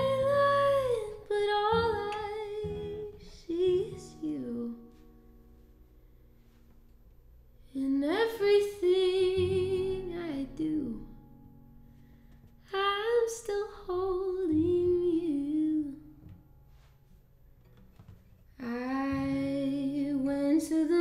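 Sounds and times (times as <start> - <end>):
woman singing wordless notes: 0.0 - 5.1, 7.6 - 11.2, 12.6 - 16.3, 18.6 - 21.0
acoustic guitar: 0.0 - 21.0.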